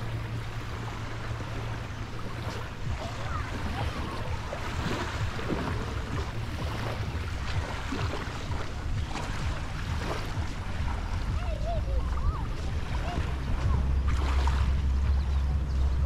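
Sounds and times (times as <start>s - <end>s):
sea waves washing in: 0.0s - 16.0s
wind buffeting microphone: 0.0s - 16.0s
faint distant voices: 2.2s - 9.4s, 10.8s - 16.0s.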